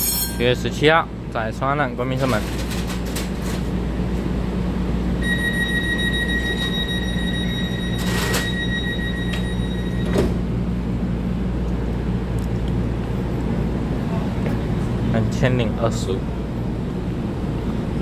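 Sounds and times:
train low hum: 0.0s - 18.0s
door closing warning beep: 5.2s - 10.4s.

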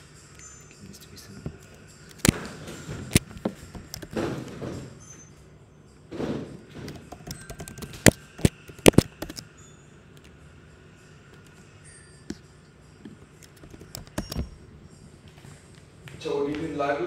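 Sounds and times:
typing on laptop keyboard: 3.1s - 4.2s, 6.9s - 9.4s, 13.4s - 14.6s.

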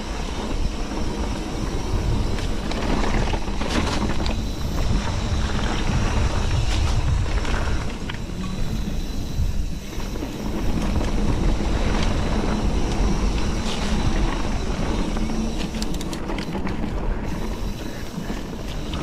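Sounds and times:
rumble of bike tyres: 0.0s - 19.0s
wind buffeting microphone: 0.0s - 19.0s
sharp rattling clicks: 15.6s - 17.0s.

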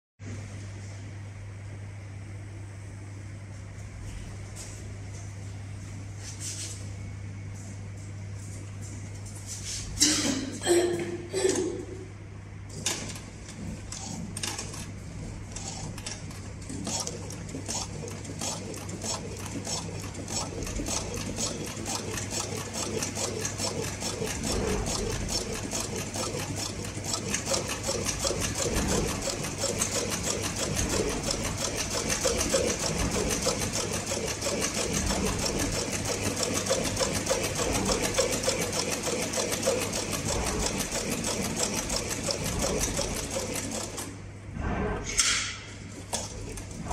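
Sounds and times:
steady low hum: 0.2s - 46.9s.

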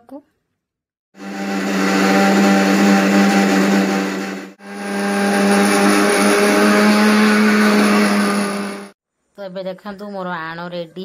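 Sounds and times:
mixer grinder motor hum: 1.2s - 9.0s.

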